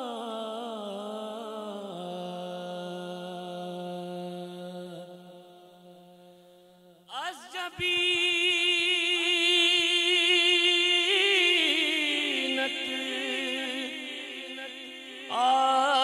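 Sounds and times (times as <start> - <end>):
man singing unaccompanied hymn: 7.0 - 16.0.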